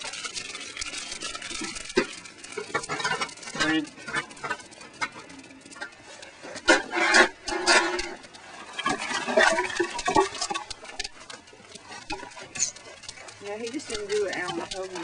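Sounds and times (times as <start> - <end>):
wood fire crackling and popping: 0.0 - 15.0.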